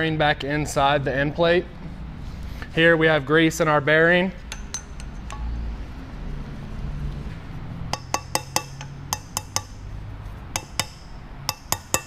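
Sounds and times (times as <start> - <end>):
hammer tapping metal: 4.4 - 5.7, 7.9 - 12.0.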